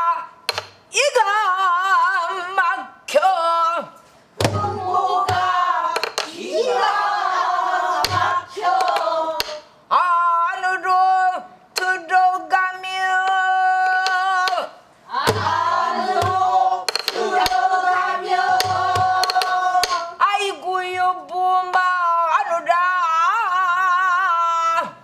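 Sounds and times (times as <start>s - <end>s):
woman singing: 0.9s - 6.2s, 18.6s - 25.0s
deep drum thumps: 4.4s - 5.6s, 15.2s - 16.5s
drumstick clacks: 5.3s - 6.4s, 16.2s - 17.6s, 18.6s - 20.1s.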